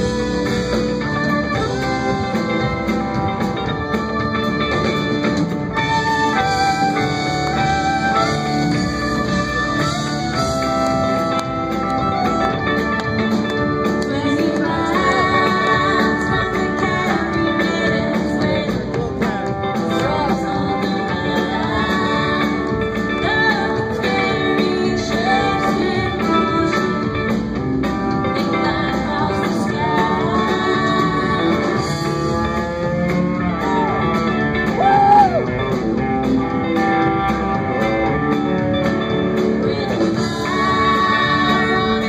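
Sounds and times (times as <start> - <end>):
country-rock band playing: 0.0 - 42.0
woman singing: 5.8 - 35.4, 39.0 - 42.0.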